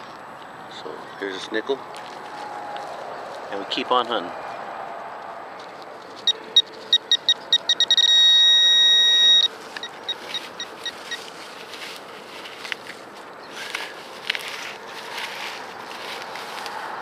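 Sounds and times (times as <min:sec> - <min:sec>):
metal detector pinpointer beeping: 0:06.2 - 0:11.3.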